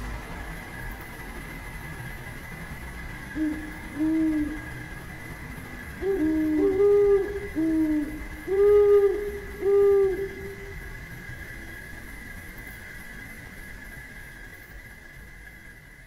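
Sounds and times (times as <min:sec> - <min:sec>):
owls hooting: 0:03.4 - 0:05.0, 0:05.9 - 0:11.1.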